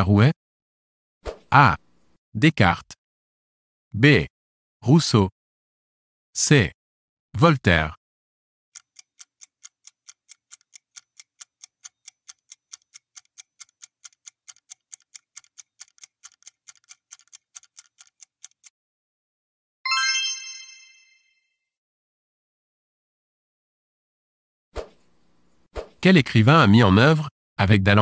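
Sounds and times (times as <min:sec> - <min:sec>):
bright chime: 0:19.9 - 0:21.5.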